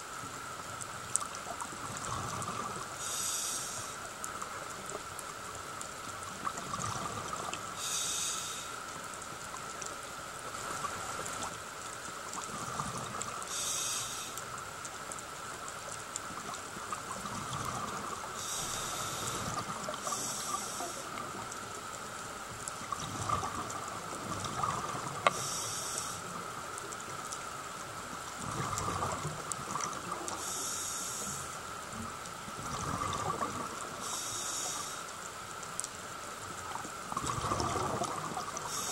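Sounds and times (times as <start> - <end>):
exhaled bubbles gurgling: 1.5 - 3.0, 6.3 - 7.7, 12.4 - 13.5, 16.3 - 21.5, 22.8 - 25.6, 28.4 - 30.6, 32.5 - 34.2, 36.6 - 38.9
regulator inhalation hiss: 3.0 - 4.1, 7.8 - 8.8, 13.5 - 14.5, 18.4 - 21.3, 25.3 - 26.4, 30.4 - 31.6, 34.0 - 35.2, 38.6 - 38.9.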